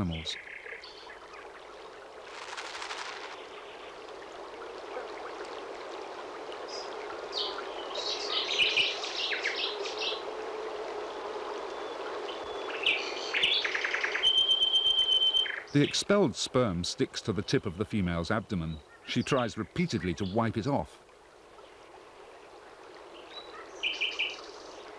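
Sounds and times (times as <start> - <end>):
birds chirping: 0.0 - 1.6, 6.6 - 10.3, 11.0 - 20.9, 21.6 - 24.9
flowing stream rushing: 1.1 - 14.3.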